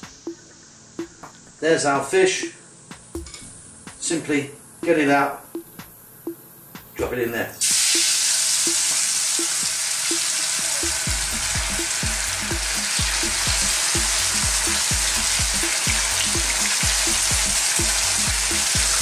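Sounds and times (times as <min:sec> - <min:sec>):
fish sizzling in hot oil: 0:07.6 - 0:19.0.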